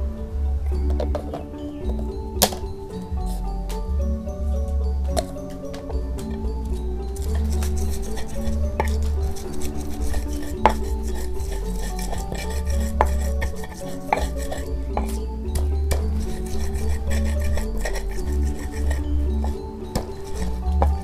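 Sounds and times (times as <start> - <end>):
background music with bass: 0.0 - 21.0
pestle knocking in stone mortar: 7.2 - 21.0.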